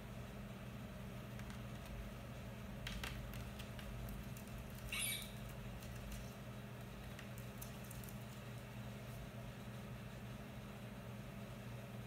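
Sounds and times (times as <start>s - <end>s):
parakeet squeak: 4.9s - 5.4s.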